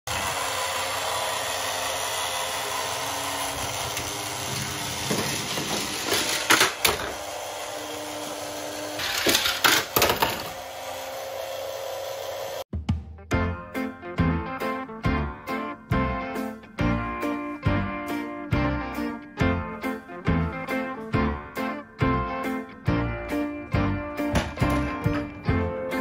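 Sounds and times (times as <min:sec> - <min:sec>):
toy conveyor motor whirring: 0:00.1 - 0:12.7
metal toy cars clattering on track: 0:03.9 - 0:07.2, 0:09.0 - 0:10.5.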